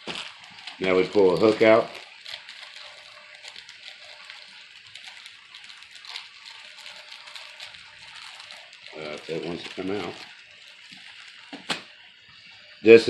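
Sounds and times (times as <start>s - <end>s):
plastic package rustling: 0.0s - 12.7s.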